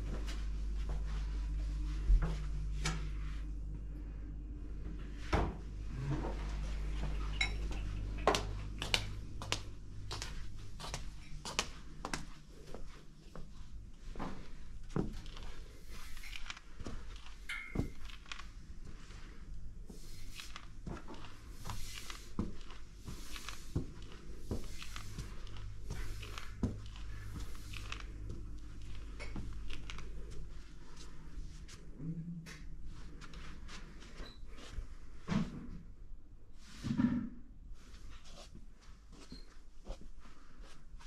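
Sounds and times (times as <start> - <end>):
steady low hum: 0.0 - 41.0
footsteps and handling knocks: 5.0 - 19.0, 20.3 - 35.8.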